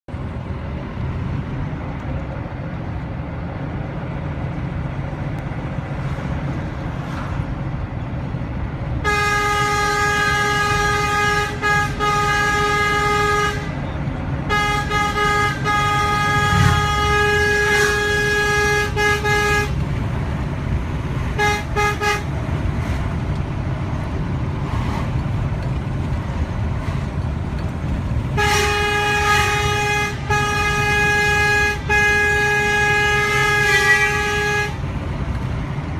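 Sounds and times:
truck engine and road noise: 0.0 - 35.9
truck horn blasts: 9.0 - 19.9, 21.2 - 22.5, 28.2 - 35.0.

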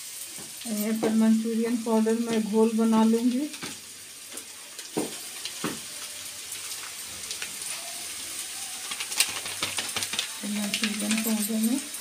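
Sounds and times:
onions sizzling in oil: 0.0 - 12.0
crackles and pops: 3.5 - 11.5.

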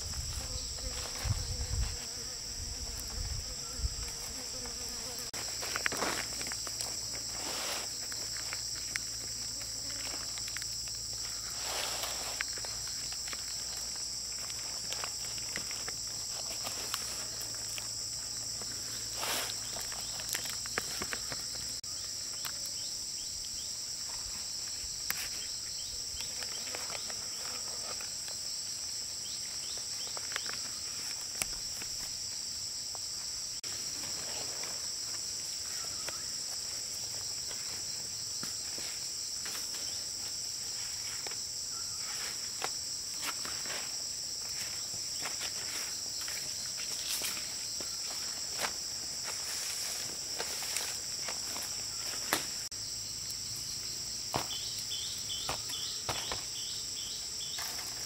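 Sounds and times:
high-pitched insect chorus: 0.0 - 58.0
leaves rustling and clicking: 5.3 - 22.8, 24.1 - 28.5, 29.4 - 32.3, 33.6 - 52.7.

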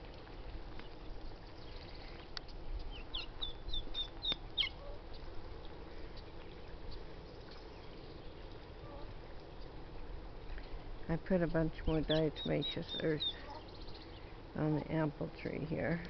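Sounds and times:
turkey poults peeping: 0.8 - 9.8, 11.8 - 14.3.

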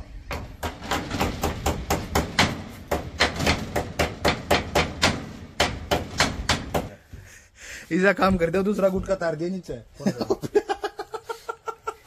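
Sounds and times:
rapid hammering: 0.3 - 7.0.

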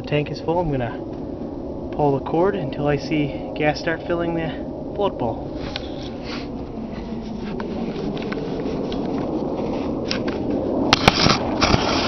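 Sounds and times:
handling noise rustling: 5.5 - 11.6.

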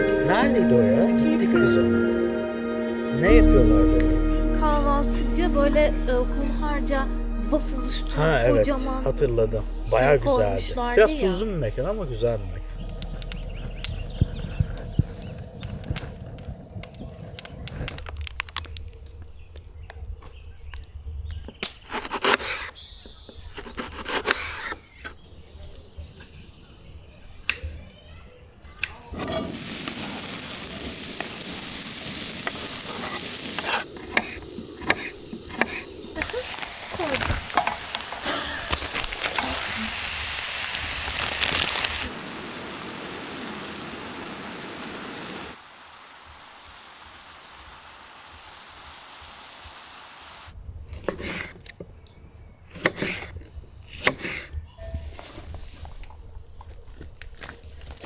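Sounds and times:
food sizzling: 0.0 - 18.8, 29.1 - 50.6.

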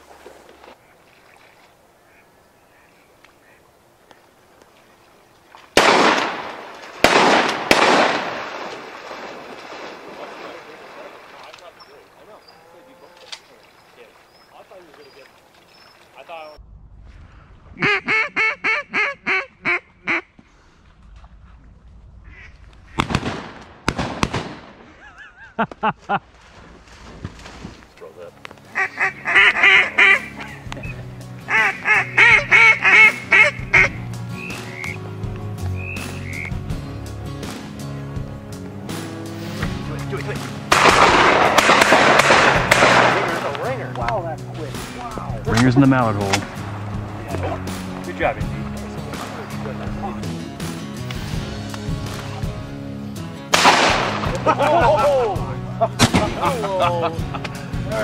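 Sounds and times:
shotgun blasts with rolling echo: 5.8 - 10.2, 22.9 - 24.9, 40.7 - 43.6, 53.5 - 54.4
duck call quacks: 17.8 - 20.3, 22.3 - 23.0, 28.8 - 35.0, 35.8 - 36.5.

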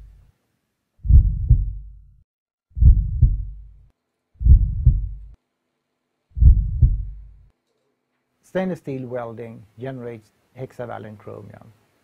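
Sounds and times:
heartbeat thumps: 1.0 - 2.0, 2.8 - 3.7, 4.4 - 5.4, 6.4 - 7.5.

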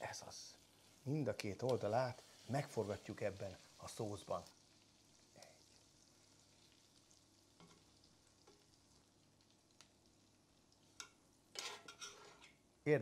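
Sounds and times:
small crackles: 0.0 - 12.6
steak sizzling in a pan: 0.0 - 12.6
metal spoon scraping pan: 11.0 - 12.6.

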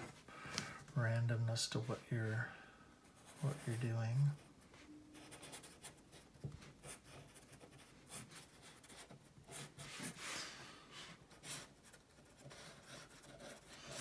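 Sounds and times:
marker pen scratching on paper: 5.2 - 10.4, 11.3 - 14.0.

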